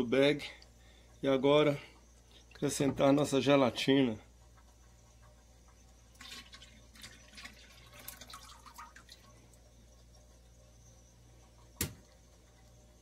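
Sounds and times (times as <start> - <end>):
liquid trickling and splashing: 6.1 - 9.6.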